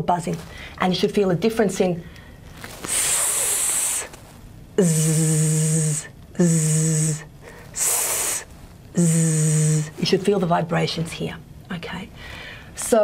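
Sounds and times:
woman making buzzing z sounds: 0:02.8 - 0:10.4
woman making hissing s sounds: 0:02.9 - 0:04.2, 0:04.8 - 0:10.0.

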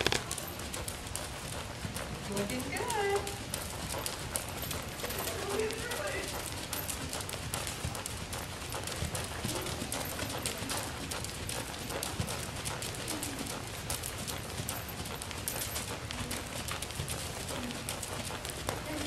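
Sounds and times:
horse hooves trotting on dirt: 0:00.0 - 0:19.0.

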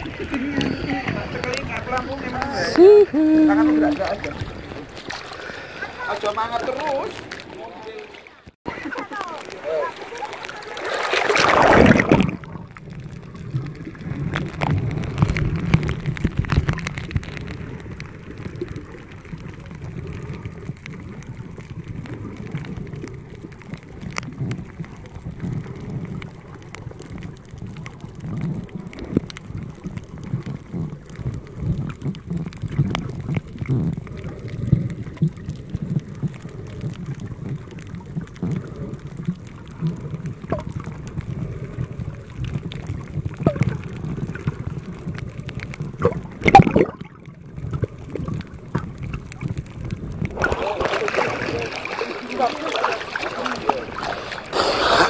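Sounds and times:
muffled underwater rumble: 0:00.0 - 0:55.0
underwater crackle: 0:00.0 - 0:55.0
camera splashing into water: 0:10.4 - 0:12.7, 0:46.0 - 0:47.2, 0:50.3 - 0:55.0.

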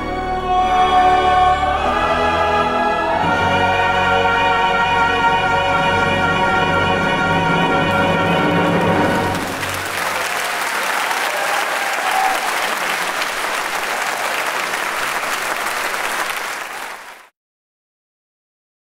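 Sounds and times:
audience applauding: 0:08.6 - 0:17.3.

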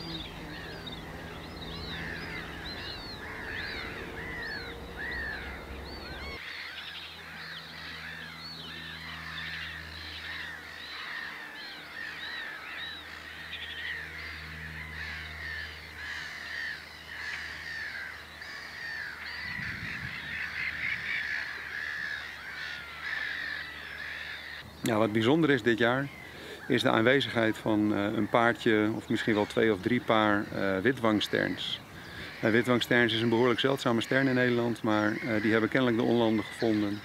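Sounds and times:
gulls calling: 0:00.0 - 0:37.0.

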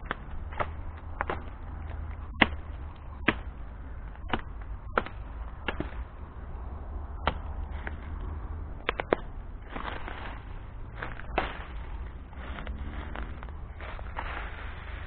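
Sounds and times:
low rumble: 0:00.0 - 0:15.0
footsteps crunching dry leaves: 0:09.6 - 0:15.0.

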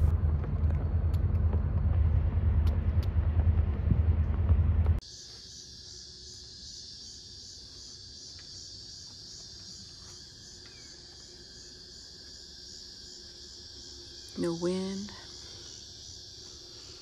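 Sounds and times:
boat engine low rumble: 0:00.0 - 0:05.0
crickets chirping: 0:05.0 - 0:17.0.

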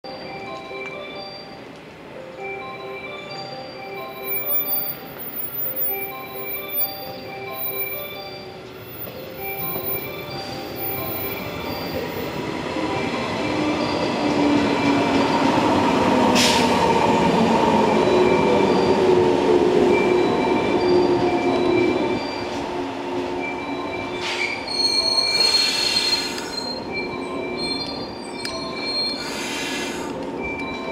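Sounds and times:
air brake hiss: 0:16.4 - 0:16.7, 0:29.1 - 0:30.2.

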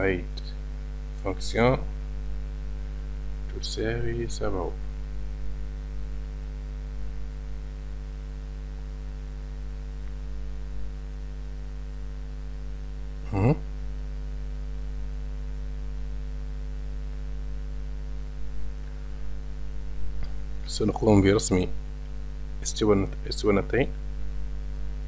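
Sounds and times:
electrical mains hum: 0:00.0 - 0:25.0
short vocal sound: 0:13.2 - 0:13.7.

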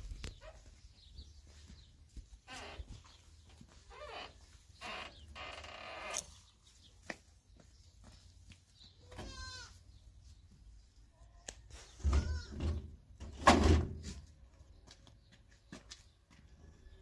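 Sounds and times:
livestock bleating: 0:09.0 - 0:09.8, 0:11.1 - 0:12.6.

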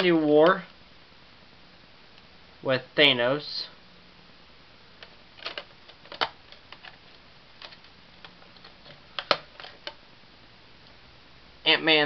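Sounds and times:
plastic disc case clicks and taps: 0:05.4 - 0:07.0, 0:07.6 - 0:10.0.

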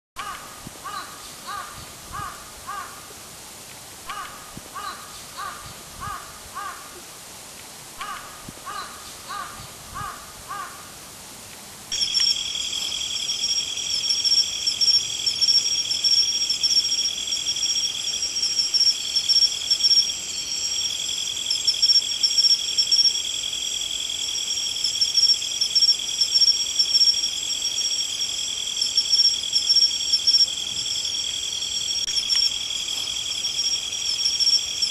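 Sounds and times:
crow cawing: 0:00.2 - 0:03.1, 0:04.1 - 0:07.0, 0:08.0 - 0:11.0
shrill insect chorus: 0:00.2 - 0:03.1, 0:04.1 - 0:07.0, 0:08.0 - 0:11.0, 0:11.9 - 0:34.9.

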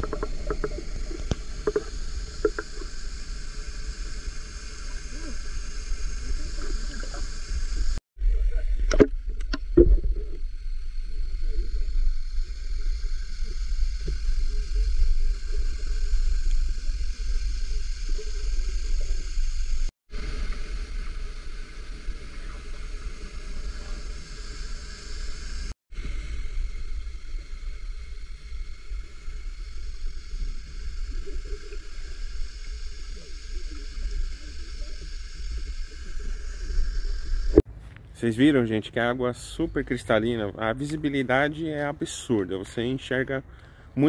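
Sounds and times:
water sloshing and gurgling: 0:00.0 - 0:24.3
underwater river rumble: 0:00.0 - 0:37.6.

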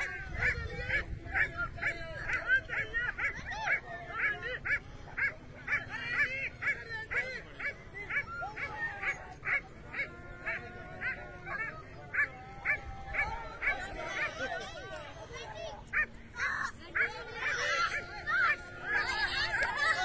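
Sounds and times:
dogs yelping and baying: 0:00.0 - 0:14.7.

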